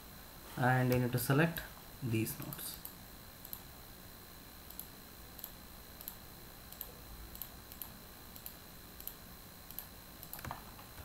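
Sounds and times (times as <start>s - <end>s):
computer mouse clicking: 2.8s - 3.6s, 4.6s - 11.0s.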